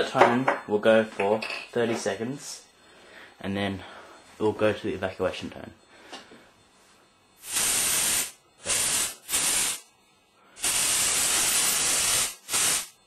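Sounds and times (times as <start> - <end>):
aerosol spray hissing: 7.4 - 9.9, 10.6 - 13.0.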